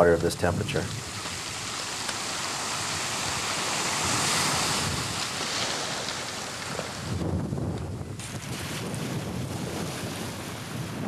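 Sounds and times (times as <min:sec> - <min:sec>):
choppy sea water: 0:00.0 - 0:11.0
wind buffeting microphone: 0:02.6 - 0:11.0.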